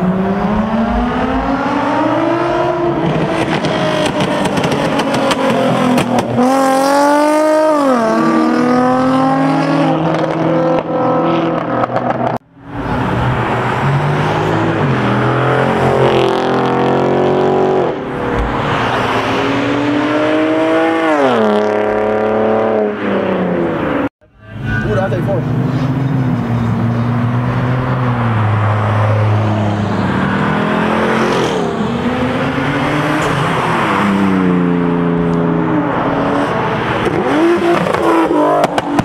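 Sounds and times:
car engine revving hard: 0.0 - 12.1.

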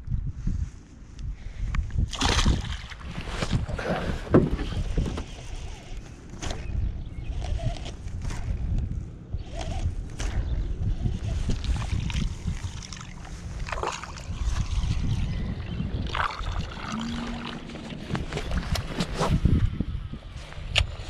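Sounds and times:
wind buffeting microphone: 0.0 - 21.0
brief splashes: 2.1 - 3.1
water lapping against boat hull: 11.5 - 15.3, 16.0 - 19.1.

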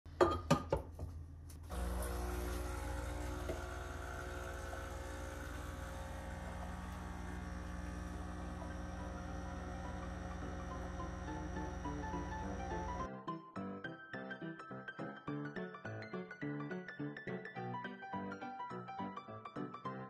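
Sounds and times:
low hum with held tones: 1.6 - 13.1.

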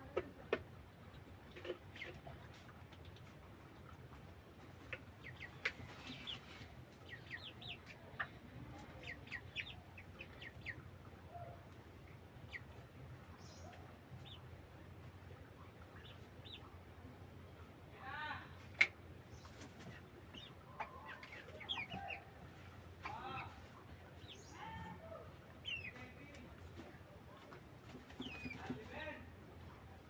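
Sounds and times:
chickens peeping and clucking: 0.0 - 30.0.

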